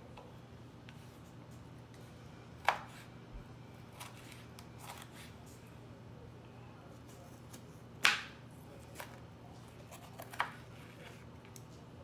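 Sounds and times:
knife slicing pepper: 3.9 - 5.4, 9.9 - 11.2.

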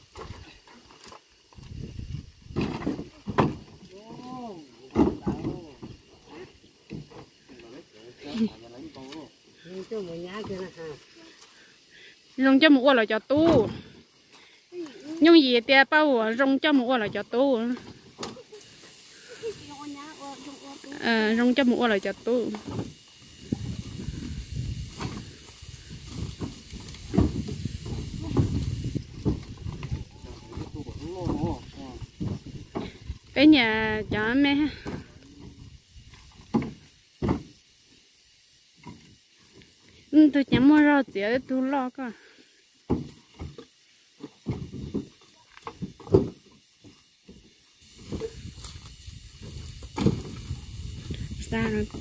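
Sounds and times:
wooden logs knocking: 36.4 - 37.5, 42.9 - 46.4
wood scuffing and rustling: 42.8 - 48.2.

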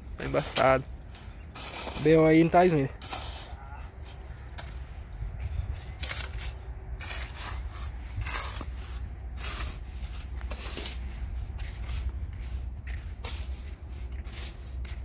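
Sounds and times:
shovel scraping in sand: 0.0 - 15.0
steady low rumble: 3.7 - 15.0.

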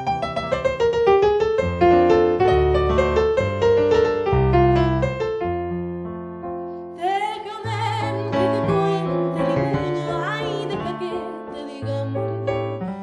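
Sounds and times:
piano chord: 0.0 - 13.0
woman singing: 7.0 - 13.0.

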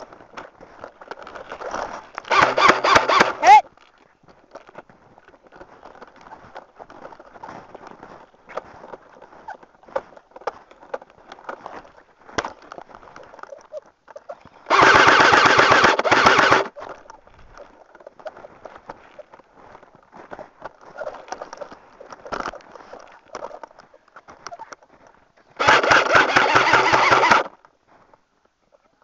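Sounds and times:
airsoft rifle firing bursts: 2.3 - 3.5, 14.7 - 16.7, 25.6 - 27.5
footsteps crunching in snow: 3.8 - 13.4, 16.7 - 26.6.

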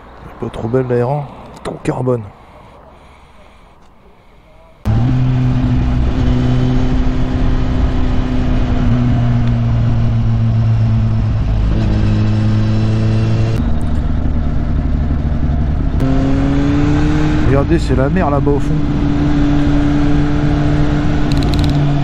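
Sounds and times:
motorcycle engine running: 4.9 - 16.2.

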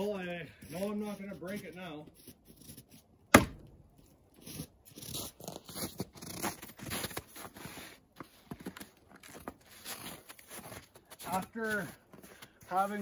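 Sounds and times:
footsteps crunching in snow: 3.9 - 13.0.

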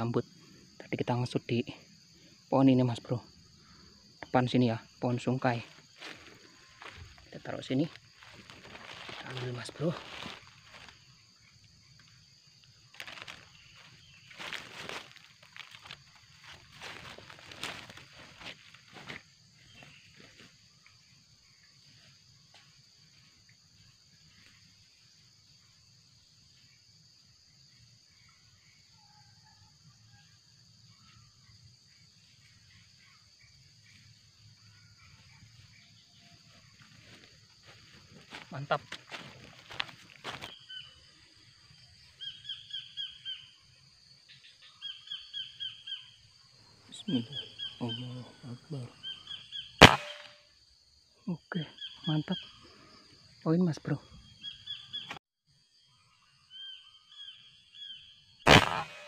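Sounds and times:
insects droning: 0.0 - 59.0
footsteps through leaf litter: 8.1 - 11.0, 13.0 - 19.2.

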